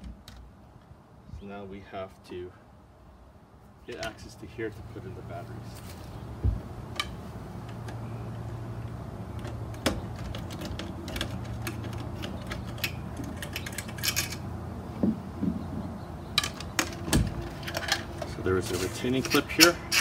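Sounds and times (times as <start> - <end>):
soft knocks: 15.0 - 16.0.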